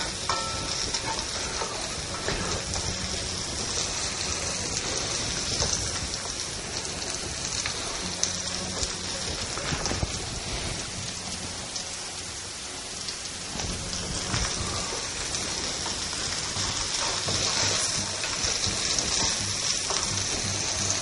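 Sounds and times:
carrots sizzling in hot oil: 0:00.0 - 0:21.0
utensil clicking against wok: 0:16.4 - 0:21.0.

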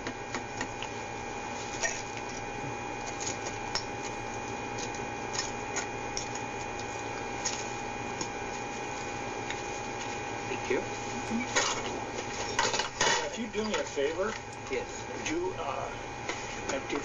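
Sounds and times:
constant whine: 0:00.0 - 0:17.0
electrical hum: 0:00.0 - 0:17.0.

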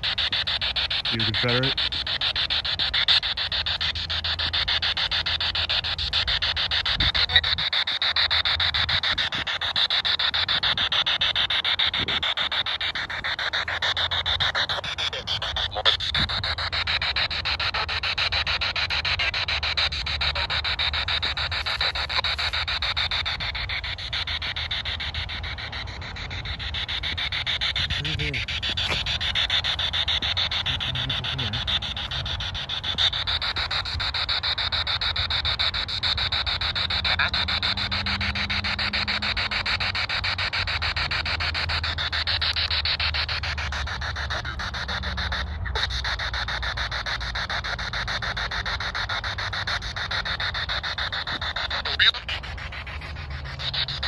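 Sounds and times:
choppy radio static: 0:01.0 - 0:08.0, 0:11.9 - 0:35.6.

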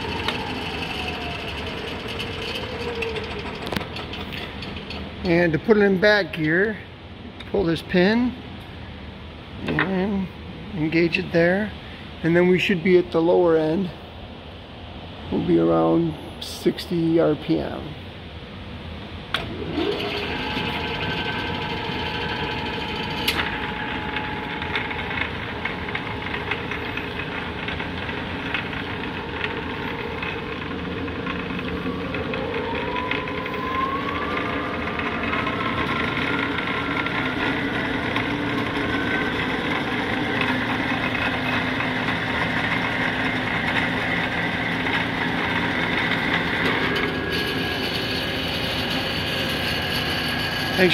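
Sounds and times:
lathe gear whine: 0:00.0 - 0:06.8, 0:19.3 - 0:50.9.

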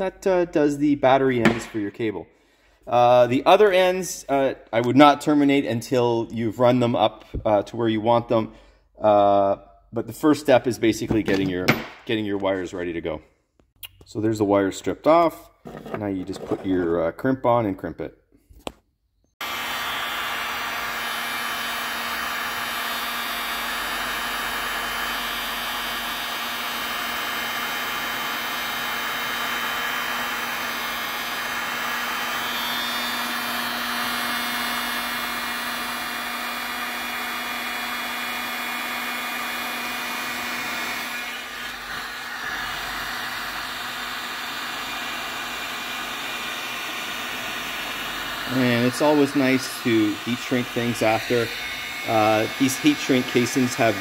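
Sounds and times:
heat gun fan humming: 0:19.4 - 0:54.0.

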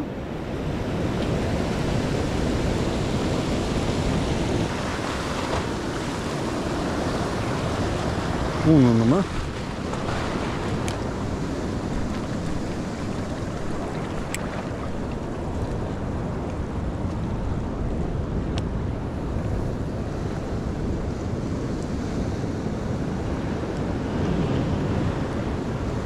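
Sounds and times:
wind buffeting microphone: 0:00.0 - 0:26.0
surf breaking on rocky shore: 0:00.8 - 0:18.1.

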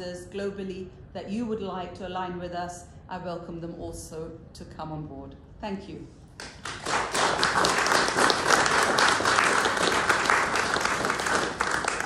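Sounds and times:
crowd applauding: 0:06.4 - 0:12.0.

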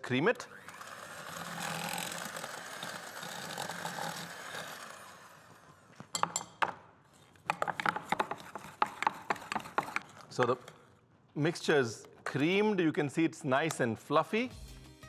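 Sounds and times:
electric hand mixer whirring: 0:00.3 - 0:05.9.

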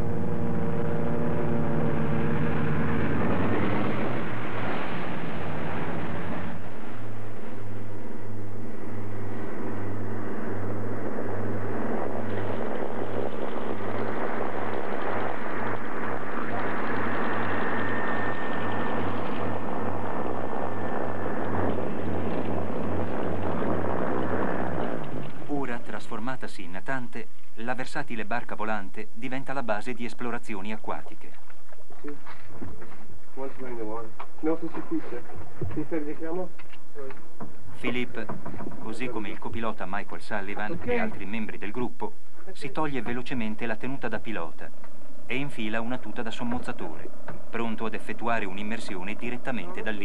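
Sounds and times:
propeller aircraft engines: 0:00.0 - 0:25.9.

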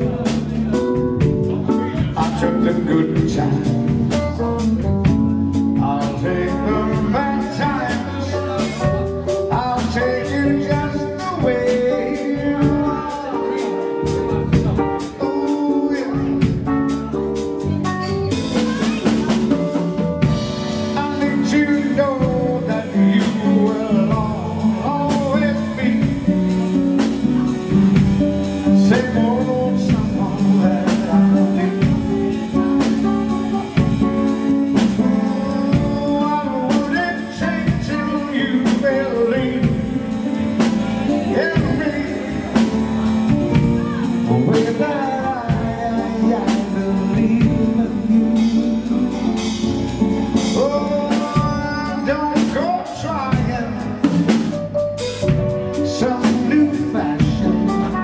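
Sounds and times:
man singing into microphone: 0:00.0 - 0:04.4, 0:05.5 - 0:17.2, 0:18.3 - 0:54.6, 0:55.2 - 0:58.0
backing band: 0:00.0 - 0:58.0.

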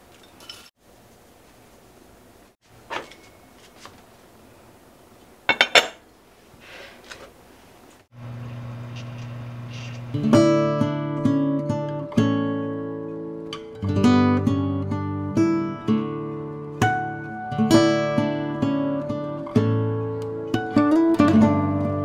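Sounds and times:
acoustic guitar music: 0:09.7 - 0:22.0.

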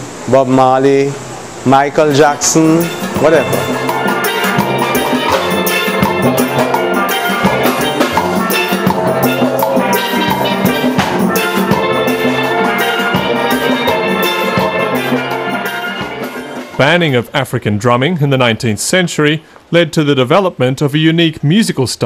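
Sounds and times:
steel band playing: 0:02.0 - 0:17.5
drums: 0:02.6 - 0:17.4.

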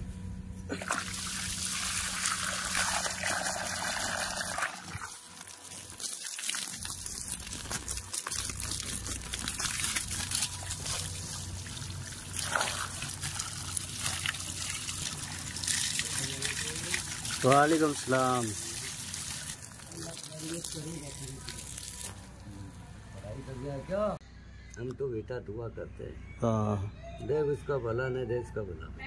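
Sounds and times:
water splashing: 0:00.7 - 0:22.1
water trickling: 0:00.8 - 0:22.1.

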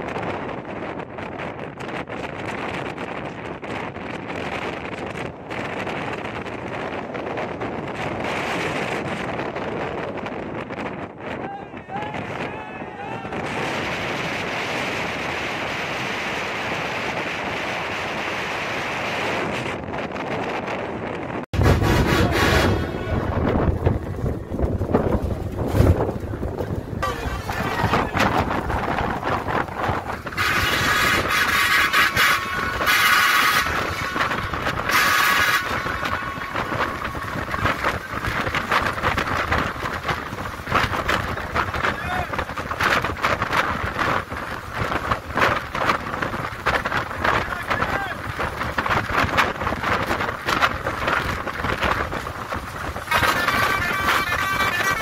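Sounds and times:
wind rushing over microphone: 0:00.0 - 0:55.0
bus driving: 0:13.0 - 0:55.0
horn blasts: 0:21.6 - 0:24.0, 0:27.0 - 0:28.6, 0:29.8 - 0:38.3, 0:53.1 - 0:55.0.

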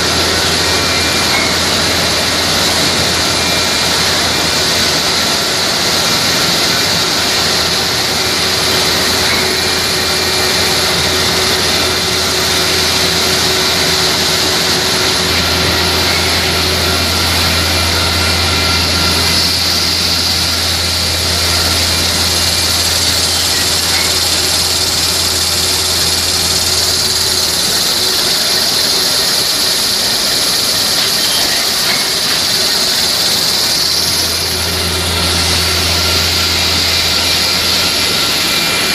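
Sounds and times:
machine noise with hiss and hum: 0:00.0 - 0:38.9.

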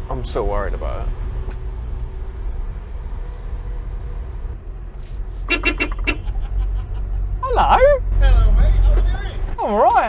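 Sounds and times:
truck engine and road noise: 0:00.0 - 0:10.0
short horn toots: 0:05.4 - 0:06.3.

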